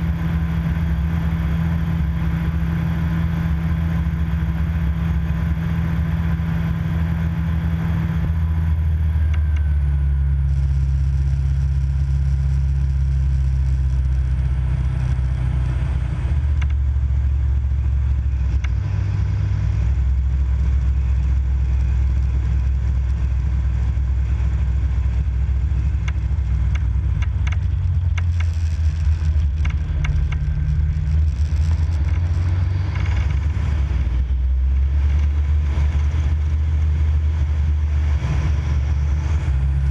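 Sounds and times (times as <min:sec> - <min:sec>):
clicks and rattles: 0:26.0 - 0:33.6.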